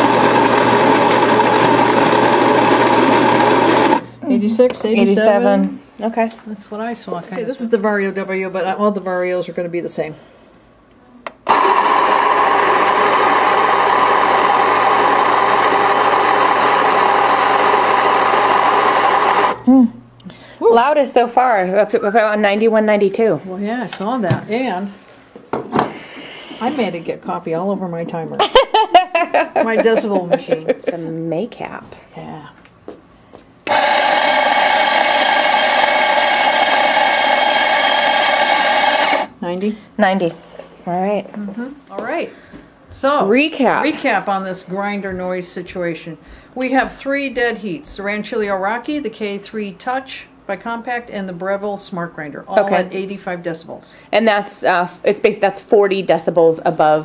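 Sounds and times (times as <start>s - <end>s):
coffee grinder whirring: 0.0s - 4.1s, 11.4s - 19.6s, 33.6s - 39.3s.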